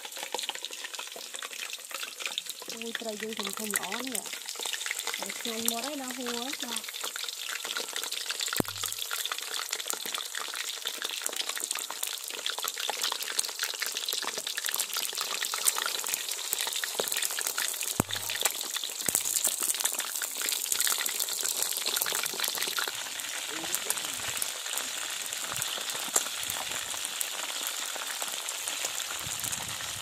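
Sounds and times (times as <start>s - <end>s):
fish deep-frying in oil: 0.0s - 30.0s.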